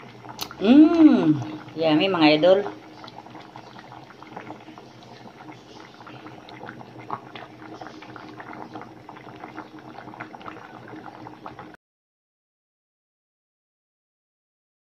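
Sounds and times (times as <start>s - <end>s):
liquid boiling in a pot: 0.0s - 11.8s.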